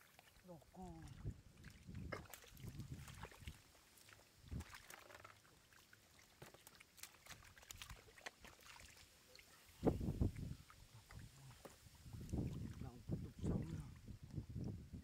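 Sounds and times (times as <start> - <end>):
hands splashing in muddy water: 1.6 - 12.8.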